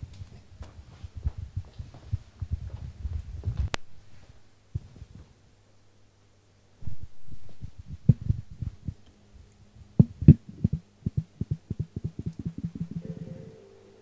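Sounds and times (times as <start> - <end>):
electrical hum: 0.0 - 14.0
microphone handling thumps: 0.6 - 3.8, 6.8 - 9.0, 10.0 - 13.0
fast low pulses: 6.8 - 9.0, 9.8 - 13.6
steady low tone: 6.8 - 14.0.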